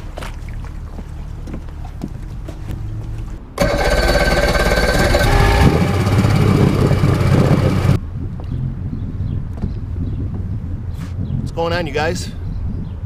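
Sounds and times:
outboard motor running: 3.6 - 8.0.

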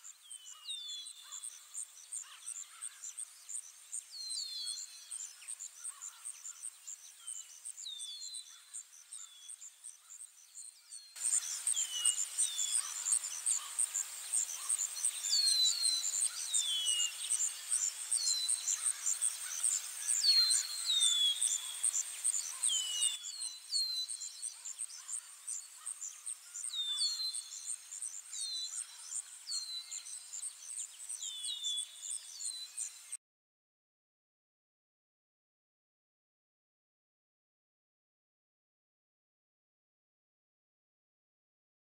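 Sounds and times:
bird chirps: 0.0 - 33.2
insects trilling: 11.2 - 23.6.

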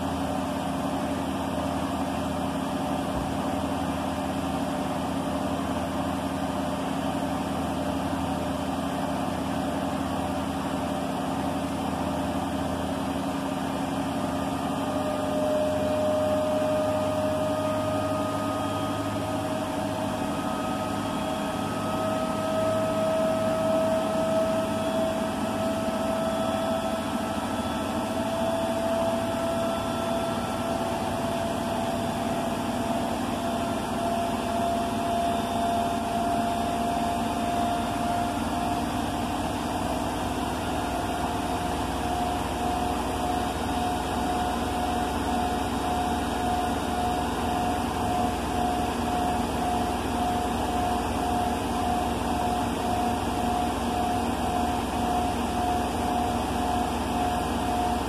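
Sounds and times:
washing machine running: 0.0 - 58.0.

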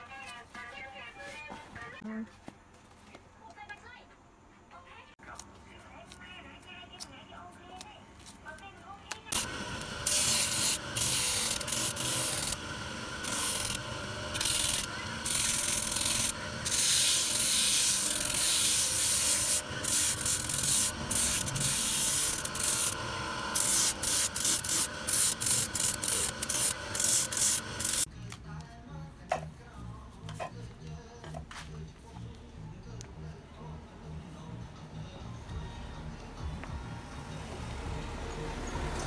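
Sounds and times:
spinning drum hum: 9.4 - 28.1.

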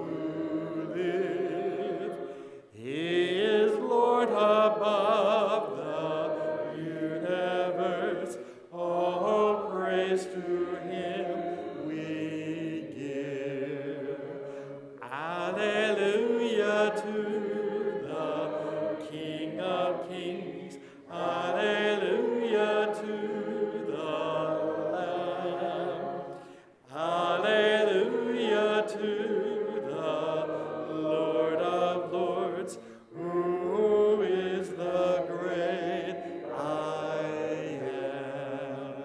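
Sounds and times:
unaccompanied hymn singing: 0.0 - 39.0.

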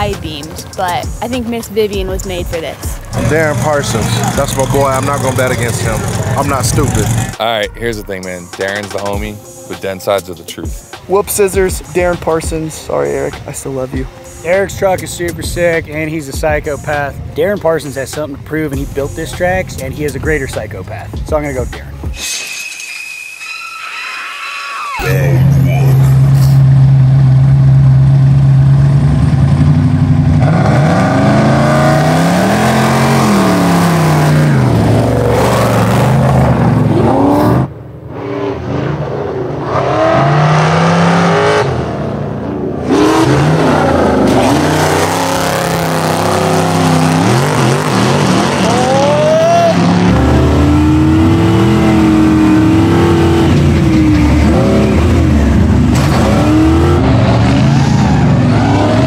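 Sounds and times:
truck engines revving hard: 0.0 - 7.5, 25.0 - 59.0.

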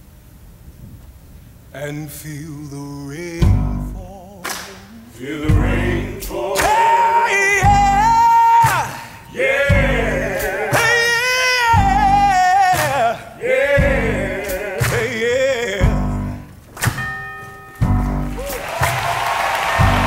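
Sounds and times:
man singing with vibrato: 1.7 - 16.5
driving percussive accompaniment: 5.4 - 20.0
applause: 18.3 - 20.0.

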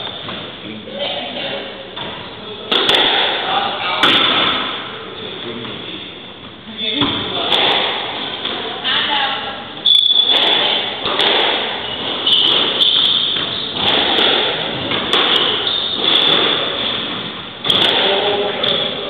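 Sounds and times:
squash ball hit by racket: 2.0 - 4.9, 7.0 - 8.6, 10.2 - 18.9.

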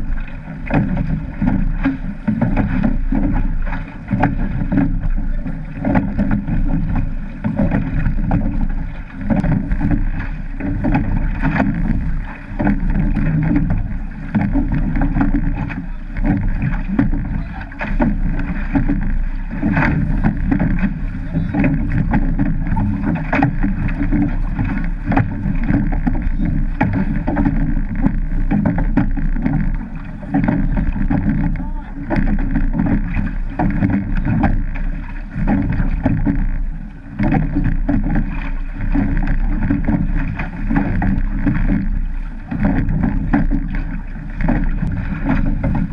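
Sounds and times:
deep rumble: 0.0 - 45.9
oar stroke knocks: 0.0 - 45.9
water rushing past hull: 0.0 - 45.9.

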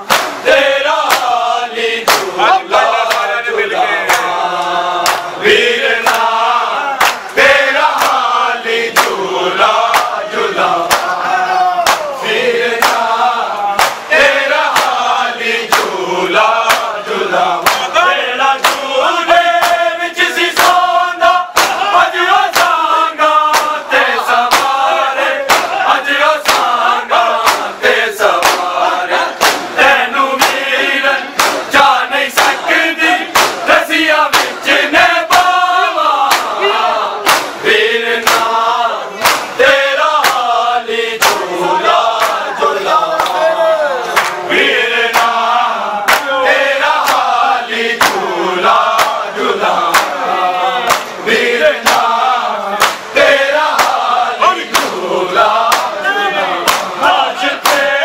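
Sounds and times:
hands slapping chests: 0.0 - 1.4, 2.0 - 3.4, 4.0 - 5.4, 6.0 - 9.2, 9.8 - 10.2, 10.8 - 11.2, 11.8 - 12.2, 12.8 - 18.0, 18.6 - 18.9, 19.5 - 19.8, 20.5 - 20.9, 21.5 - 28.8, 29.4 - 29.8, 30.4 - 30.7, 31.3 - 32.6, 33.2 - 34.6, 35.3 - 36.6, 37.2 - 37.6, 38.2 - 40.6, 41.2 - 42.5, 43.1 - 43.4, 44.0 - 47.4, 48.0 - 50.2, 50.8 - 51.2, 51.8 - 54.1, 54.7 - 56.0, 56.6 - 57.0, 57.6 - 57.9
crowd chanting: 0.0 - 58.0.

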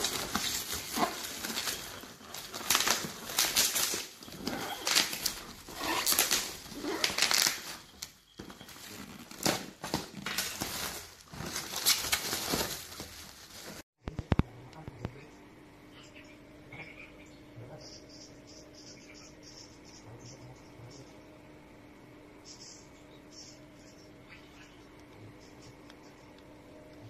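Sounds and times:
plastic wrapping crinkling: 0.0 - 13.8.

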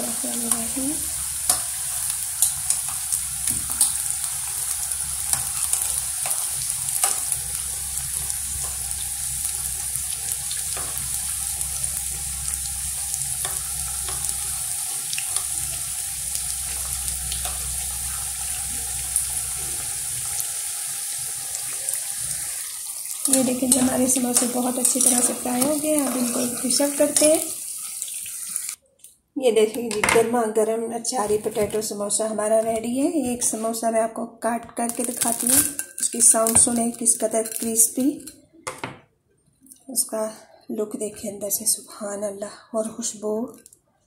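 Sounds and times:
food deep-frying in hot oil: 0.0 - 28.8, 34.8 - 38.3.

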